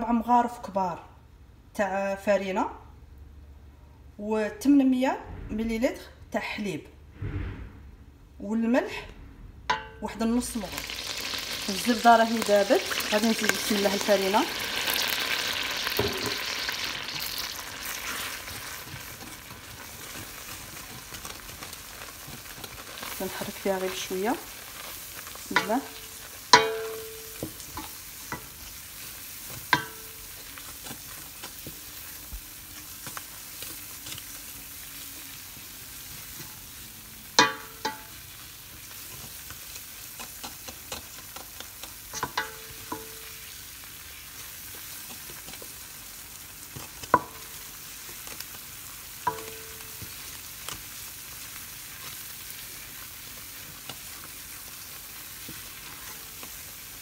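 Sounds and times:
roux sizzling in a pot: 9.7s - 57.0s
wooden spoon knocking on pot: 29.5s - 30.2s, 37.4s - 38.1s.

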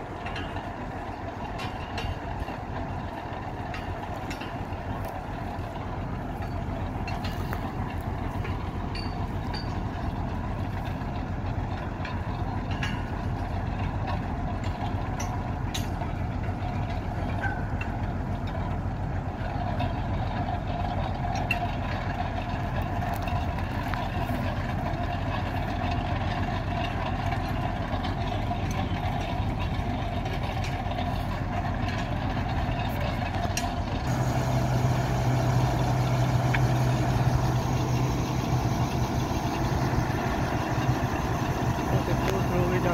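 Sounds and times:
drilling rig engine running: 0.0s - 42.9s.

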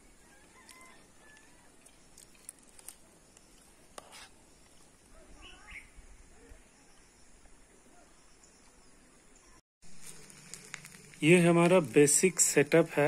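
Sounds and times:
bird warbling call: 5.4s - 6.0s.

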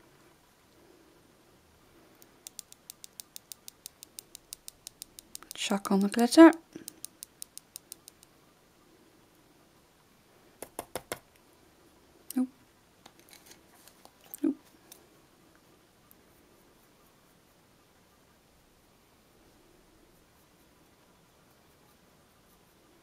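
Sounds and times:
plastic tube tapping fingernail: 2.5s - 6.1s, 10.6s - 11.2s.

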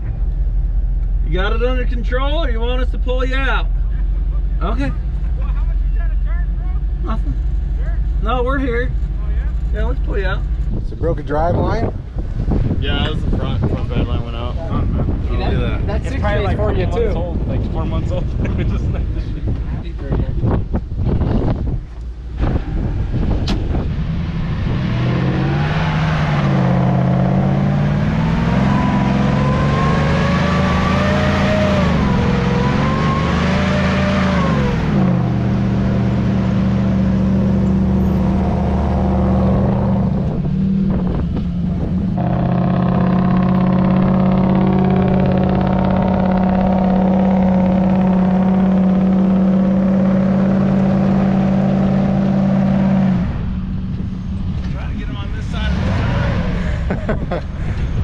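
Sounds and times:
truck engine revving under load: 21.1s - 58.0s.

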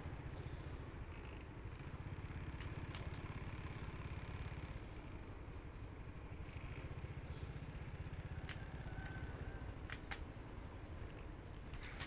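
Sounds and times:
motorcycle engine rumbling: 0.0s - 12.0s
sharp clicks: 2.4s - 3.4s, 7.6s - 10.4s.

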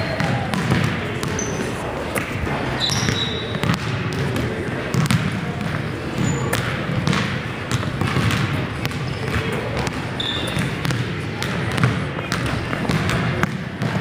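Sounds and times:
basketballs bouncing on hardwood: 0.0s - 1.6s, 2.8s - 14.0s
sneaker squeaks: 0.0s - 2.0s, 2.7s - 3.8s, 6.0s - 7.2s, 8.1s - 11.0s.

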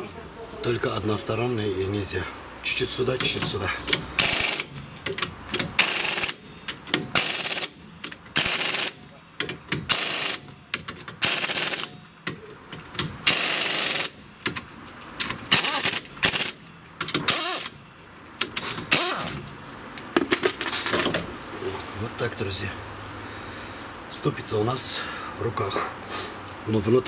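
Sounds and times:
ratchet rattling: 3.1s - 21.1s.

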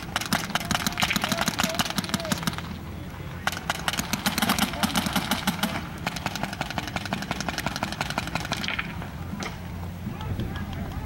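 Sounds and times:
paintball markers firing: 0.0s - 2.8s, 3.4s - 9.6s.

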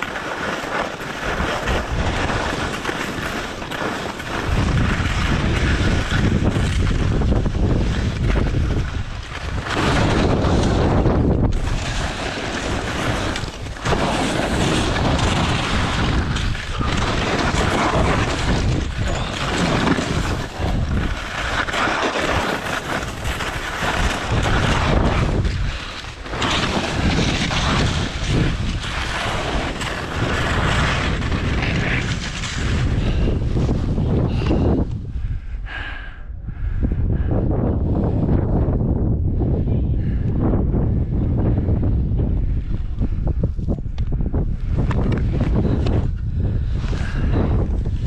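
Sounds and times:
ski edges scraping snow: 0.0s - 34.7s
wind on microphone: 0.0s - 48.0s.

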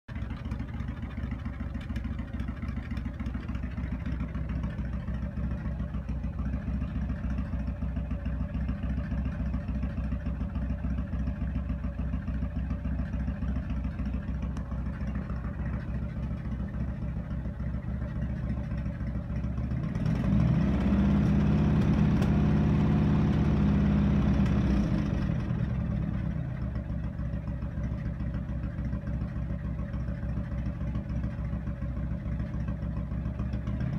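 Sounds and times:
motorcycle engine idling and revving: 0.0s - 33.9s.

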